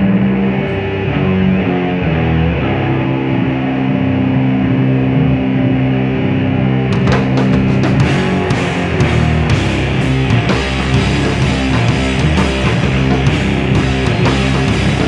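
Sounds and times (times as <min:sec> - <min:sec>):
bass guitar chords: 0:00.0 - 0:15.0
distorted electric guitar: 0:00.0 - 0:15.0
drums and cymbals crashing: 0:07.0 - 0:15.0.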